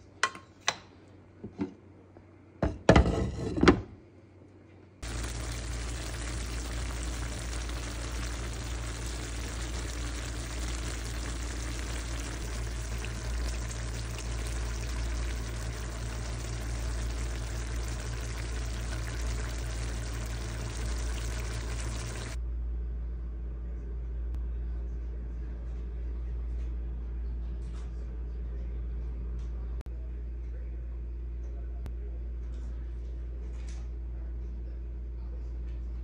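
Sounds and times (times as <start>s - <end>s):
sauce simmering with crackles: 5.0s - 22.4s
low hum: 5.0s - 23.8s.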